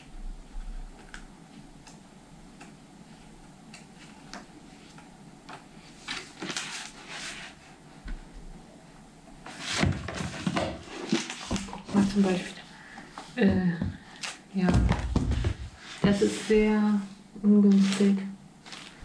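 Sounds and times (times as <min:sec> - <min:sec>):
book pages rustling: 0:03.0 - 0:07.7, 0:09.4 - 0:12.6, 0:17.7 - 0:19.0.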